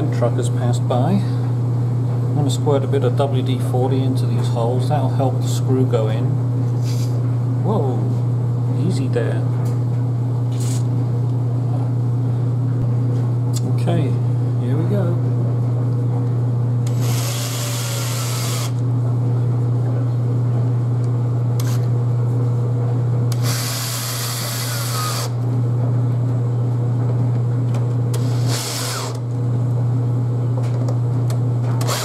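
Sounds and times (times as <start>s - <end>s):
steady low hum: 0.0s - 32.0s
cordless drill driving screws: 16.9s - 18.8s, 23.3s - 25.4s, 28.2s - 29.2s, 31.8s - 32.0s.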